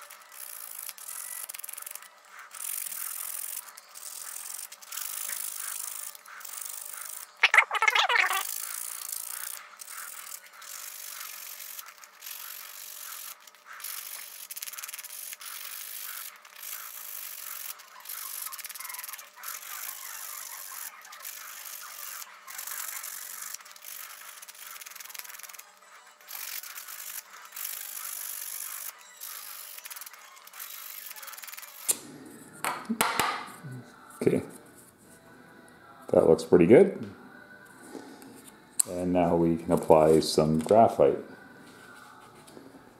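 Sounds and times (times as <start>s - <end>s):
sandpaper rubbing wood: 8.3s - 25.6s.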